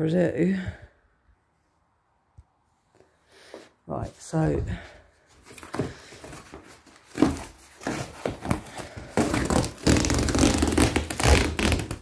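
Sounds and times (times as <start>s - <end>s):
cardboard and paper rustling: 5.2s - 12.0s.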